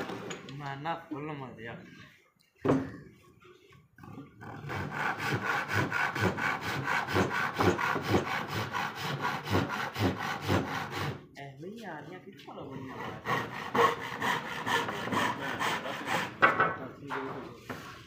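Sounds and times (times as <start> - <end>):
handsaw cutting wood: 4.4 - 11.4, 12.5 - 17.4.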